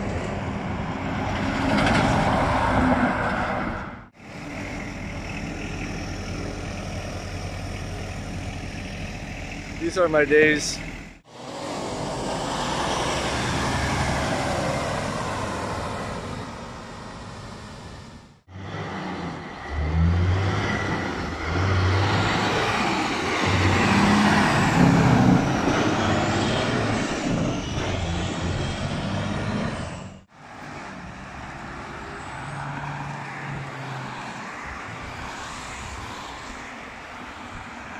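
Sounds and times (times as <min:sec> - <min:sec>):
diesel truck engine accelerating: 0:00.0 - 0:33.0
street traffic noise: 0:00.0 - 0:37.9.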